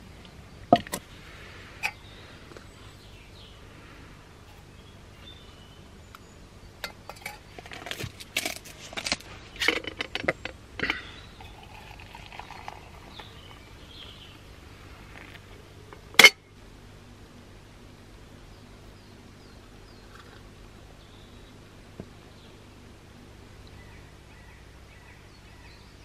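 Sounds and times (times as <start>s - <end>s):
water pouring into cup: 11.4s - 13.6s.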